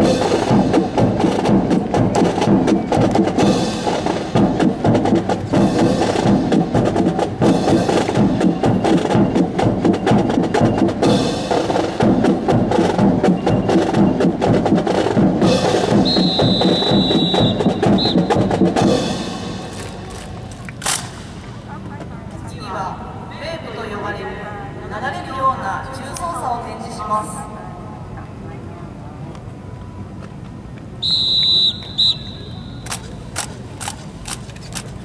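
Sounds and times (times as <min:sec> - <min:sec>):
marching drum cadence: 0:00.0 - 0:22.1.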